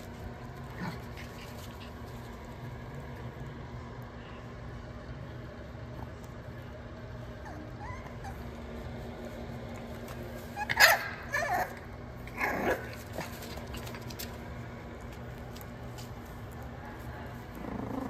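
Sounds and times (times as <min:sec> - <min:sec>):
steady low hum: 0:00.0 - 0:18.0
puppy barking: 0:10.6 - 0:11.8.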